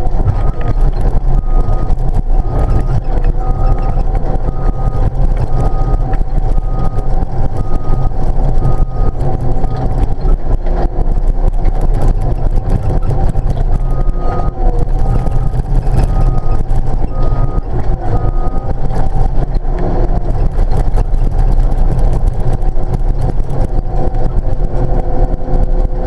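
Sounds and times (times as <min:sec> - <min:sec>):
diesel engine running: 0:00.0 - 0:26.0
reverse alarm beeping: 0:01.4 - 0:09.9, 0:13.8 - 0:18.8.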